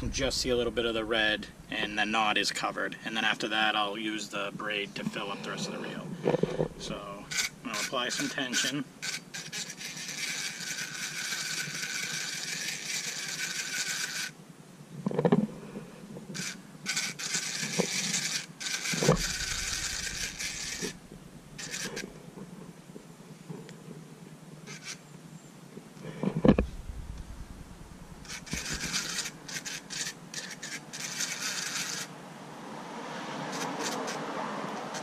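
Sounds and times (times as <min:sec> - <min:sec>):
fishing reel gears whirring: 0:06.8 - 0:08.4, 0:09.0 - 0:14.3, 0:16.3 - 0:22.1, 0:24.7 - 0:25.0, 0:27.8 - 0:32.1.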